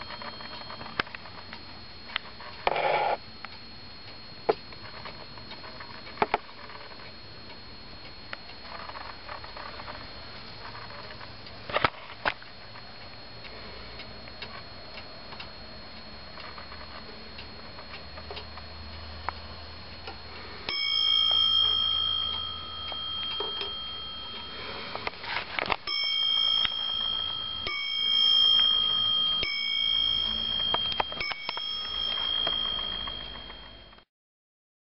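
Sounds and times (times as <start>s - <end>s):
clock bell striking: 0.0s - 1.4s, 20.7s - 34.0s
wall clock ticking: 12.3s - 33.9s.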